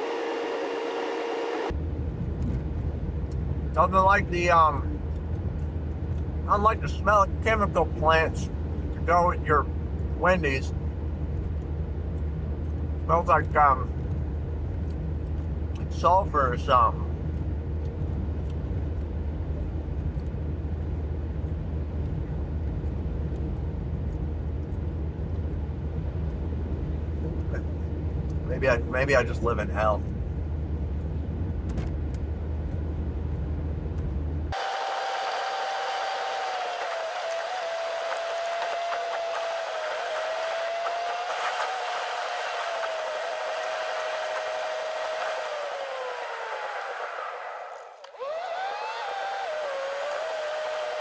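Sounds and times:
wavering whine: 0:00.0 - 0:01.8, 0:34.5 - 0:51.0
car engine humming: 0:00.0 - 0:51.0
road noise: 0:00.0 - 0:51.0.

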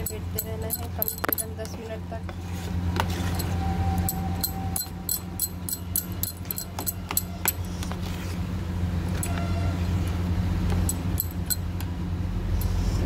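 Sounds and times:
spoon clinking against bowl: 0:00.0 - 0:01.5
steady low hum: 0:00.0 - 0:13.0.

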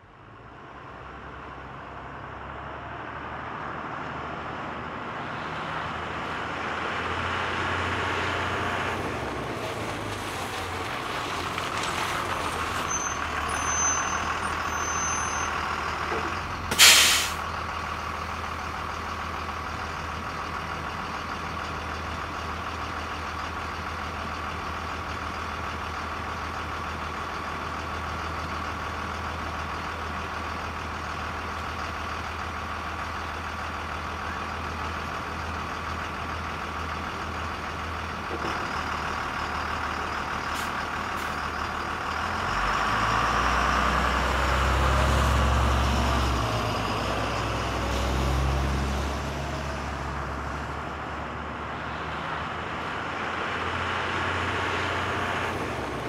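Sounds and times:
bus engine idling: 0:04.5 - 0:56.0
air brakes hiss: 0:16.7 - 0:17.5.

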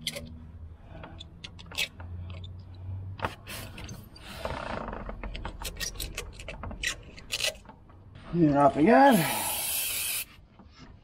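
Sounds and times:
metal pick clicking and scraping: 0:05.1 - 0:07.8.

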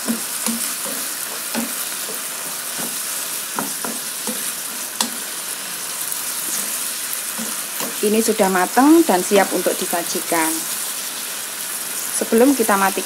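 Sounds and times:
spatula scraping and tapping pan: 0:00.0 - 0:05.4, 0:06.4 - 0:08.0
food sizzling in a frying pan: 0:00.0 - 0:13.0.

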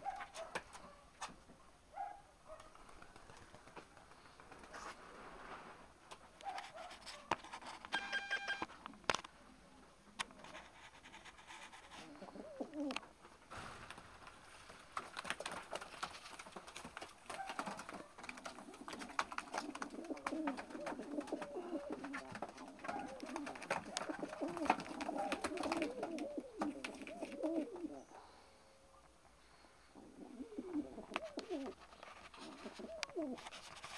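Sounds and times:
pigeons cooing: 0:12.0 - 0:13.1, 0:17.3 - 0:33.4.

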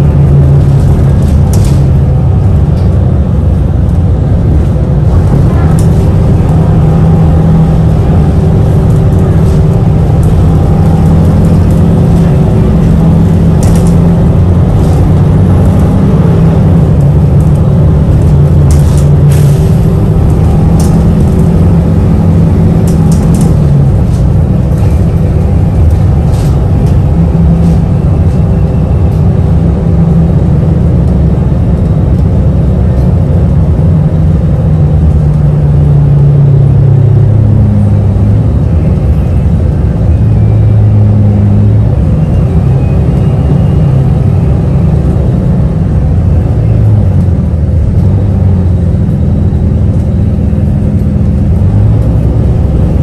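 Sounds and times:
bus engine and road rumble: 0:00.0 - 0:53.0.

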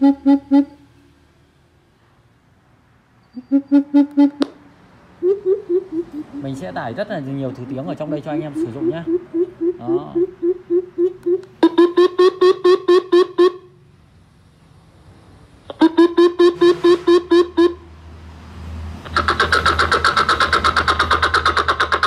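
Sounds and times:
rapid low repeated hoots: 0:00.0 - 0:00.8, 0:03.4 - 0:04.4, 0:05.2 - 0:06.6, 0:08.6 - 0:13.8, 0:15.7 - 0:17.8, 0:19.1 - 0:22.0
high-pitched call series: 0:00.0 - 0:00.9, 0:03.3 - 0:04.6, 0:05.2 - 0:06.8, 0:08.1 - 0:13.7
recorded bird calls from speaker: 0:05.2 - 0:07.0, 0:07.9 - 0:13.7.

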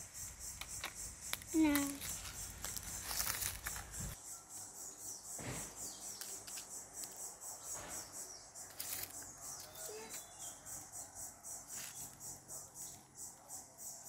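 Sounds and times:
insects chirping: 0:00.0 - 0:14.0
rustling in dry leaves: 0:01.2 - 0:04.2, 0:08.7 - 0:10.3, 0:11.6 - 0:12.4.

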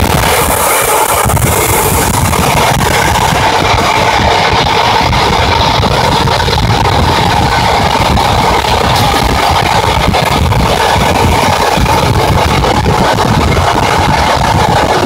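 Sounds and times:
electric train running at speed: 0:00.0 - 0:15.0.

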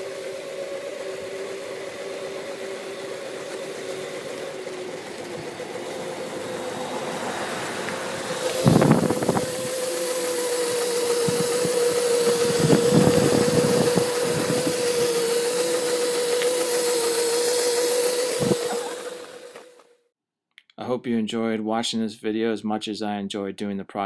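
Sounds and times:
electric scooter motor whine: 0:00.0 - 0:19.9
road and wind noise: 0:05.2 - 0:09.8, 0:11.2 - 0:15.0.

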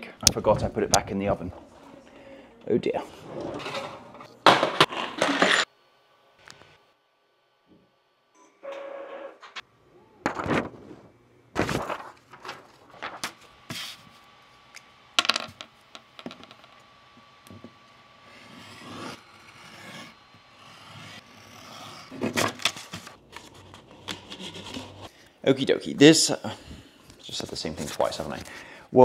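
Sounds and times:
blade scraping across paper: 0:18.2 - 0:25.1.

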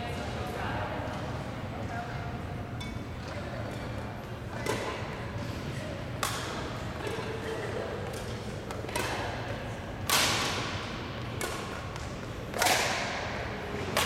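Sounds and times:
rackets striking shuttlecock: 0:04.6 - 0:05.0, 0:06.2 - 0:07.1, 0:08.0 - 0:09.4, 0:10.0 - 0:14.0.

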